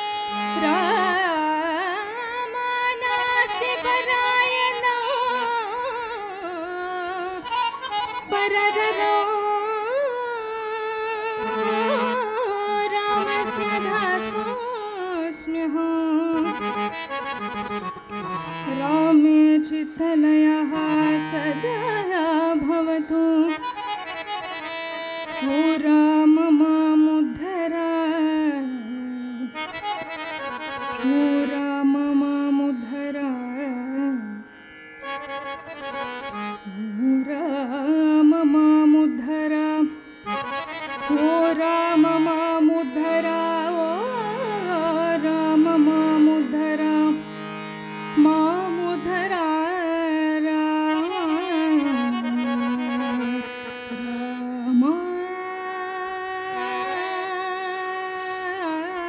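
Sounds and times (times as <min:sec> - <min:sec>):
women singing devotional song: 0:00.0 - 0:07.4, 0:08.3 - 0:16.9, 0:18.7 - 0:23.6, 0:25.4 - 0:29.2, 0:36.7 - 0:39.9, 0:41.1 - 0:47.3, 0:48.1 - 0:59.0
harmonium: 0:00.0 - 0:59.0.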